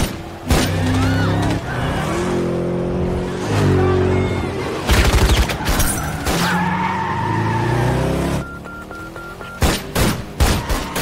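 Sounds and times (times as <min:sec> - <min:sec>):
mobile phone beeps: 0:08.4 - 0:09.6.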